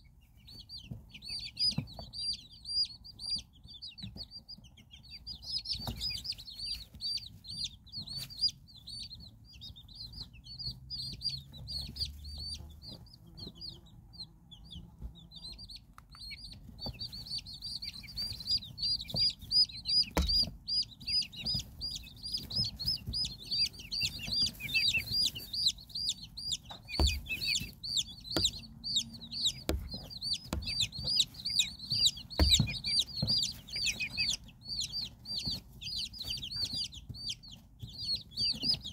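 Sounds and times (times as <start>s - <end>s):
chicks peeping: 0.0s - 38.9s
soft knocks: 18.2s - 37.2s.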